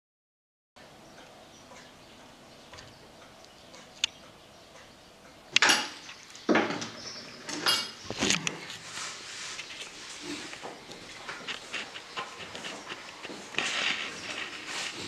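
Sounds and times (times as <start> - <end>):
dishes and cutlery clattering: 7.5 - 8.0.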